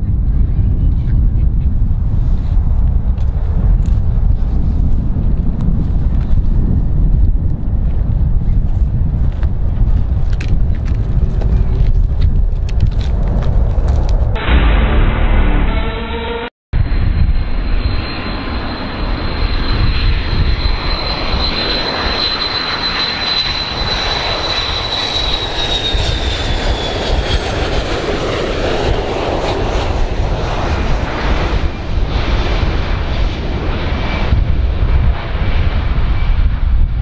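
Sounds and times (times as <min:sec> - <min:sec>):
airplane engines rumbling: 0:00.0 - 0:37.0
high engine whine: 0:11.4 - 0:29.8.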